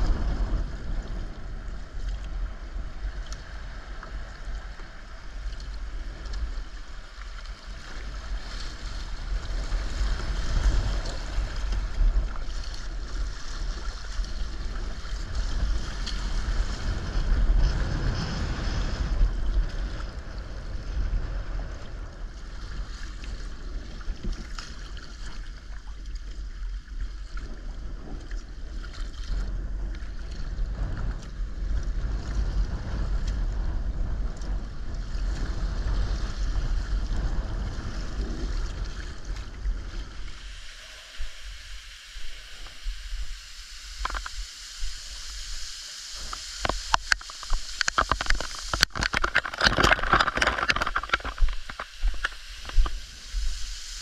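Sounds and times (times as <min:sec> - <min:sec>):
paddle blades splashing: 0:00.0 - 0:21.7
wind buffeting microphone: 0:00.0 - 0:45.5, 0:46.2 - 0:54.0
water washing along hull: 0:00.0 - 0:54.0.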